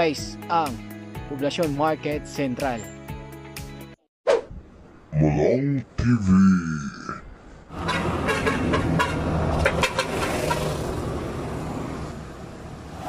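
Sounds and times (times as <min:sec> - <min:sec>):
vehicle engine passing: 0:07.7 - 0:13.0.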